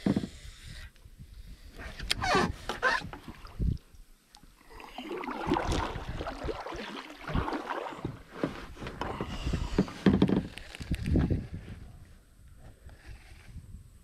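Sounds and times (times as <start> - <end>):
paddle splashing in water: 4.6 - 10.5.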